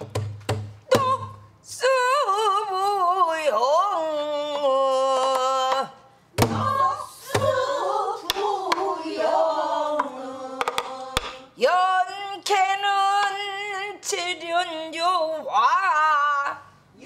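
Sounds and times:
drum strikes: 0:06.4 - 0:07.8
group of voices singing: 0:06.4 - 0:11.6.

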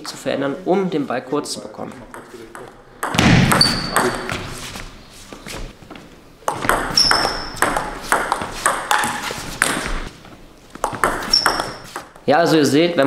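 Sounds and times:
ball bouncing on table: 0:02.0 - 0:04.5, 0:06.4 - 0:10.1, 0:10.7 - 0:12.2
table tennis ball clicking off bats: 0:06.4 - 0:10.1, 0:10.8 - 0:12.3.

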